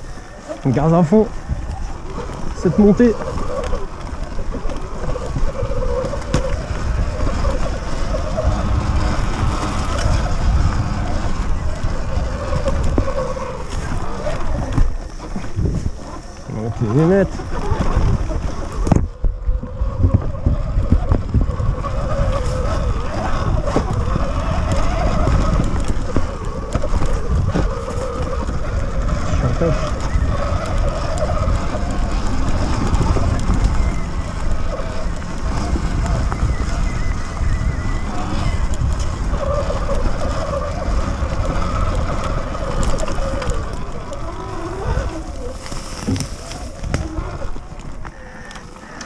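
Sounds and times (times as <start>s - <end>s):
electric motor whine: 0.0s - 49.0s
wind buffeting microphone: 0.0s - 49.0s
tyres clicking over twigs: 38.6s - 49.0s.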